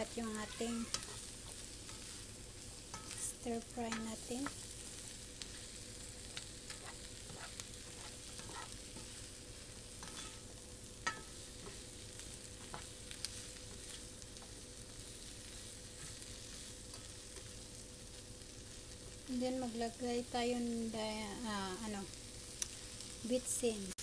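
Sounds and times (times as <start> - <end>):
food sizzling in frying pan: 0.0 - 24.0
utensil scraping pan: 0.3 - 4.6, 6.7 - 9.2, 10.0 - 11.9.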